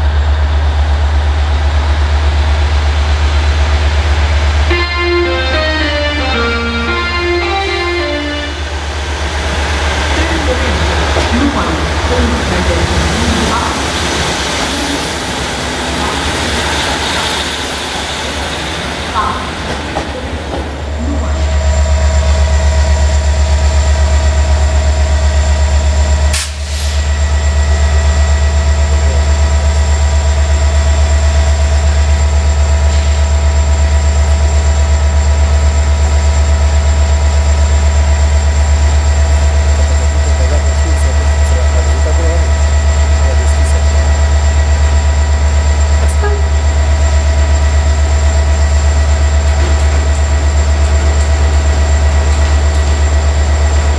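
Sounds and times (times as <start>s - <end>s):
diesel train engine idling: 0.0s - 53.9s
steady higher tones: 4.6s - 16.7s.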